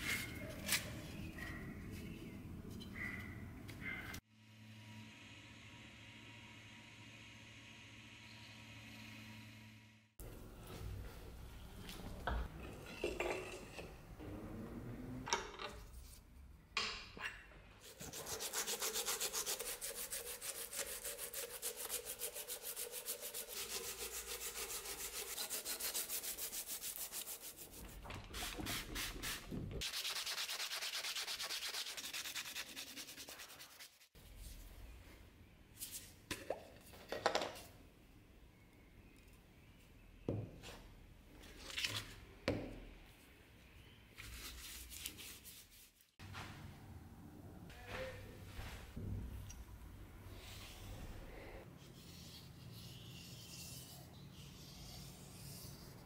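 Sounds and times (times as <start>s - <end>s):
fast rasping of sanding: 17.9s - 27.8s, 29.8s - 34.1s.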